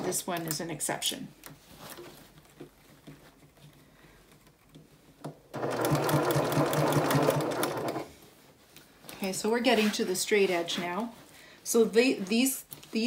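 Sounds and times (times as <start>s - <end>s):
sewing machine stitching: 5.5s - 8.1s.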